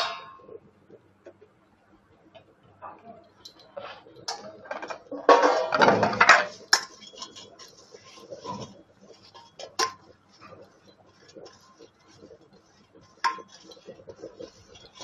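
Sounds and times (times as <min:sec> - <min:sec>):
metal scraping rattle: 0:03.4 - 0:12.4.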